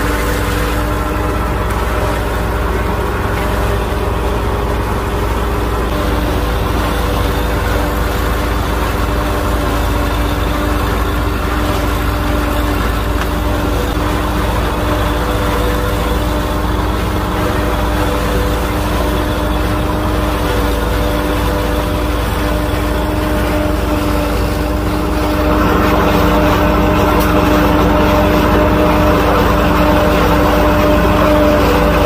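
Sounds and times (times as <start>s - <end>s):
forage harvester hum: 0.0s - 32.0s
tractor engine drone: 0.0s - 32.0s.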